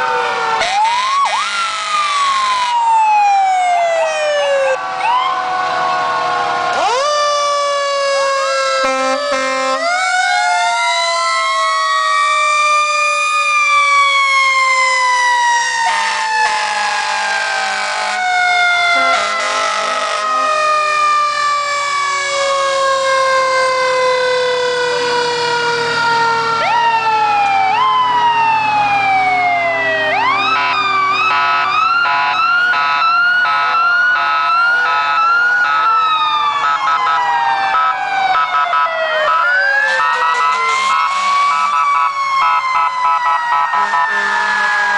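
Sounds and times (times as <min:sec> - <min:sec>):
fire engine sirens wailing: 0:00.0 - 0:44.9
siren fast yelp: 0:00.6 - 0:06.0, 0:06.7 - 0:44.9
horn blasts: 0:08.8 - 0:09.9, 0:15.8 - 0:18.2, 0:18.8 - 0:21.0, 0:30.5 - 0:35.1, 0:39.9 - 0:41.8, 0:43.5 - 0:44.9.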